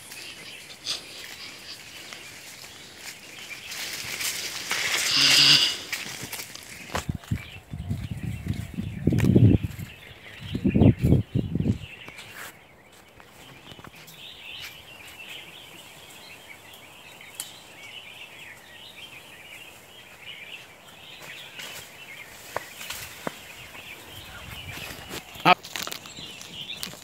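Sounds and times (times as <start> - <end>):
twigs snapping: 0.0 - 7.2, 24.8 - 27.0
birds chattering: 0.0 - 27.0.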